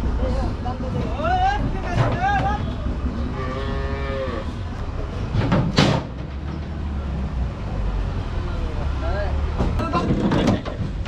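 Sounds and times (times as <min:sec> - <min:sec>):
cow mooing: 0:03.3 - 0:04.6.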